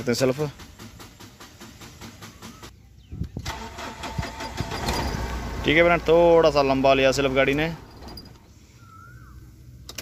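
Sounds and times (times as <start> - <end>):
diesel engine cranking by starter: 0.2 - 2.7, 3.3 - 8.5.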